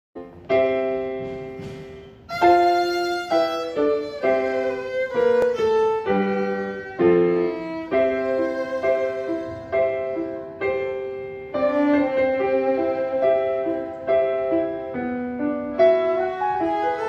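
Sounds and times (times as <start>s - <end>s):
piano accompaniment: 0.2s - 17.0s
violin playing slow melody: 2.2s - 14.6s, 15.8s - 17.0s.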